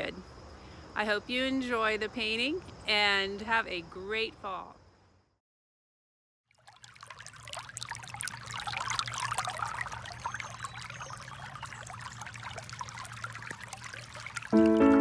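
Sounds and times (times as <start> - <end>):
stream water babbling over rocks: 6.6 - 15.0.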